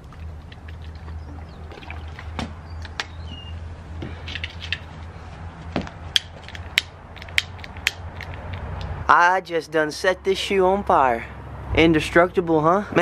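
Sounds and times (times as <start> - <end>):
small handling clicks and knocks: 5.8 - 8.9.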